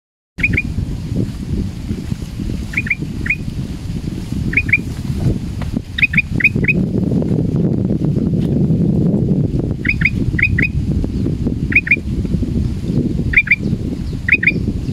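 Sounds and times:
bird calling with sharp notes: 0.4 - 0.8, 2.7 - 3.5, 4.5 - 4.9, 6.0 - 6.8, 9.8 - 10.8, 11.7 - 12.0, 13.3 - 14.7.

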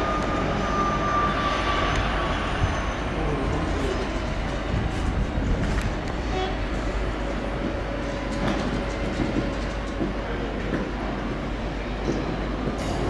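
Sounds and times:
diesel locomotive engine rumble: 0.0 - 13.0
train wheels clattering: 3.6 - 13.0.

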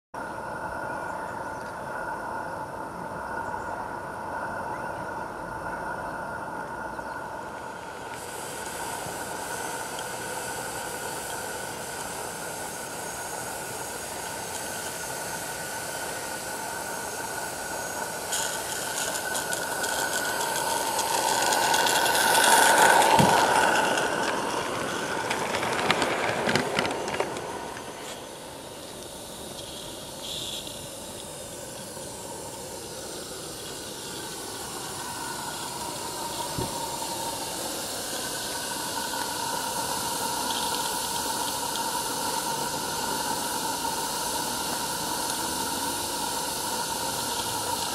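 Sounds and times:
steady high ringing tone: 0.2 - 24.8, 27.9 - 47.9
steam locomotive hiss and running: 0.2 - 47.9.

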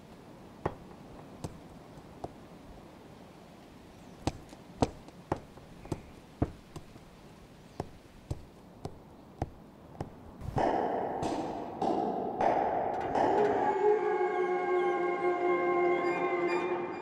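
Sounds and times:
sharp dry taps: 0.6 - 2.5, 4.2 - 11.4.

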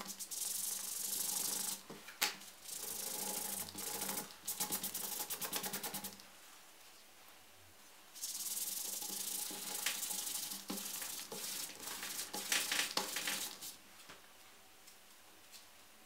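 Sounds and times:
scratchy rubbing on leather: 8.2 - 13.8.

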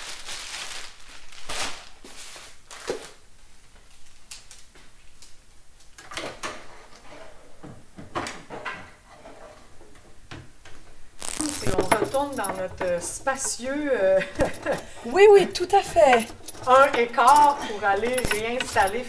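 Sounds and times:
plastic wrapping rustling: 0.0 - 3.3, 11.2 - 19.0.

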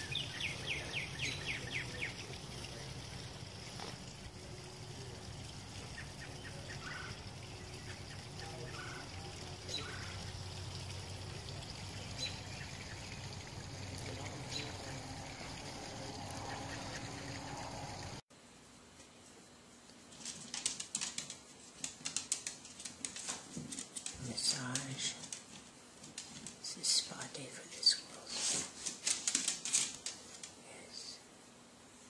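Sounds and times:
outdoor background noise: 0.0 - 32.0.

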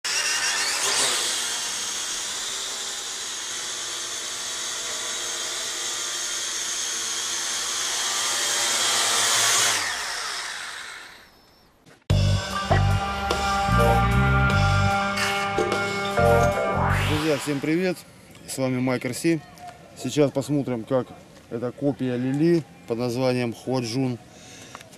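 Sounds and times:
quadcopter motors whining: 0.0 - 11.7.

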